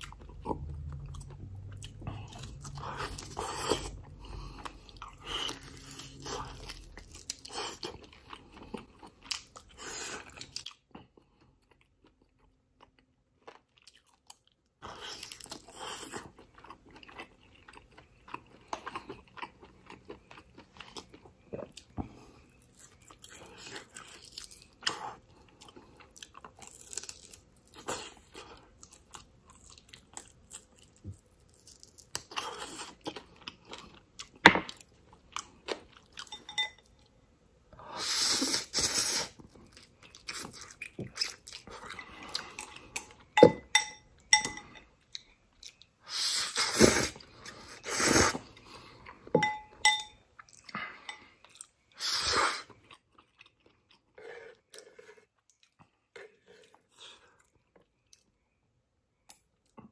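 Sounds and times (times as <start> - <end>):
chopsticks clinking on glass bowl: 36.3 - 36.8, 49.4 - 50.2
slurping noodles: 38.0 - 39.4, 46.1 - 48.6.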